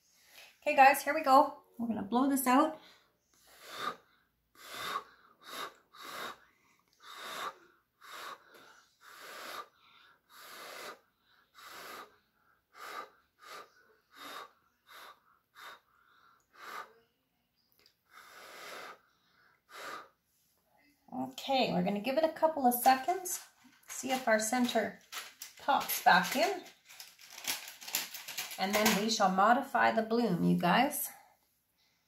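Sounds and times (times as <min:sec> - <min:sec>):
quick breaths: 0:02.8 - 0:17.0, 0:18.0 - 0:20.4, 0:22.8 - 0:29.0
person blowing short puffs: 0:03.4 - 0:04.0, 0:04.6 - 0:06.4, 0:07.0 - 0:11.0, 0:18.1 - 0:19.0.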